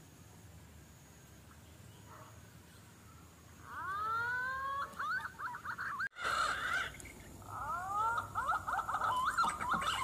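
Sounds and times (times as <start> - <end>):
pigeons whistling and warbling: 3.9 - 10.0.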